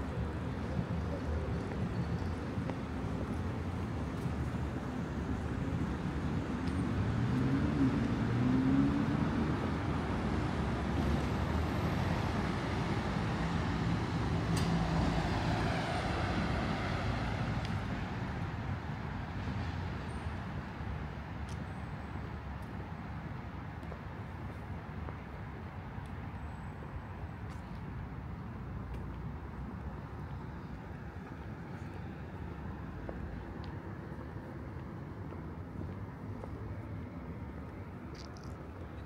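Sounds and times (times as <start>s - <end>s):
steady traffic hum: 0.0s - 39.0s.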